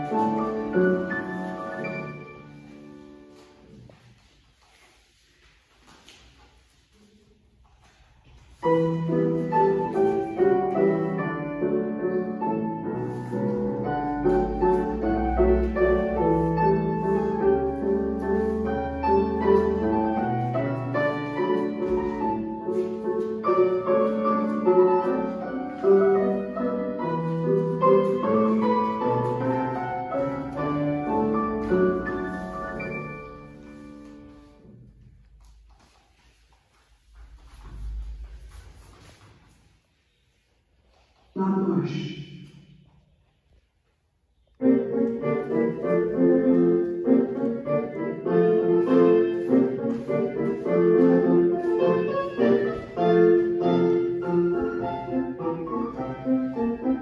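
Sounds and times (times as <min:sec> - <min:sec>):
solo piano playing: 0:08.7 - 0:34.4, 0:44.6 - 0:57.0.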